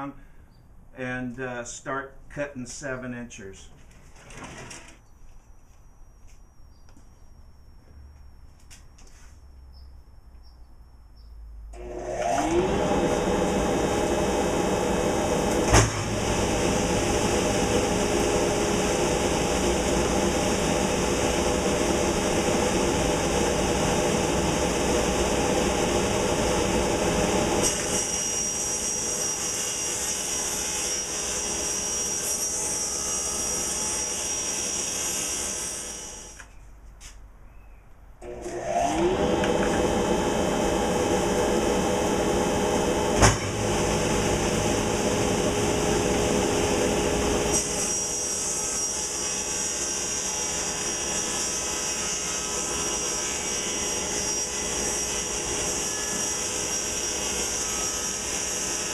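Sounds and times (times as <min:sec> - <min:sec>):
table saw running: 0:11.7 - 0:36.4, 0:38.2 - 0:58.9
saw ripping plywood: 0:26.7 - 0:32.1.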